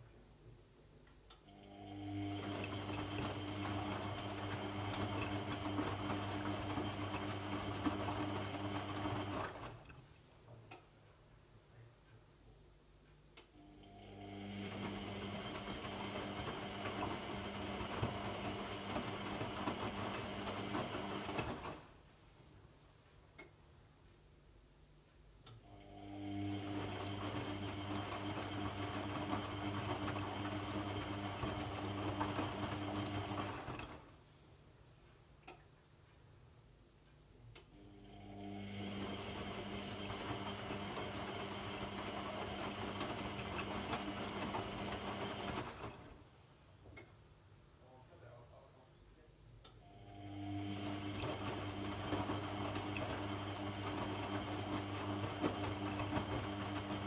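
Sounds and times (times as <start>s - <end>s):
washing machine motor hum: 1.5s - 9.9s, 13.5s - 22.0s, 25.6s - 34.1s, 37.7s - 46.3s, 49.8s - 57.0s.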